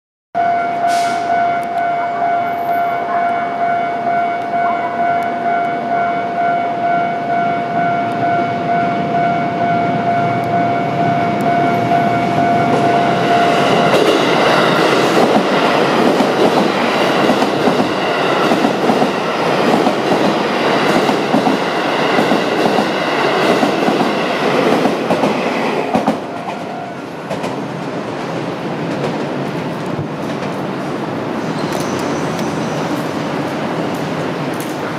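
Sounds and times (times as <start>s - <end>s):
level-crossing alarm ringing: 0.4s - 27.4s
train passing: 0.4s - 34.9s.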